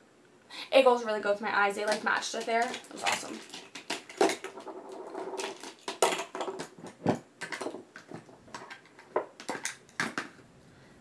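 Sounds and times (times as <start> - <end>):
plastic cases and pencils clicking: 1.8 - 10.4.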